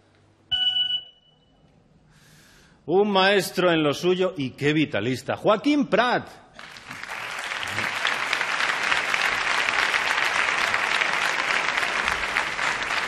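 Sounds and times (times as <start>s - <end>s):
audience applauding: 6.6s - 13.0s.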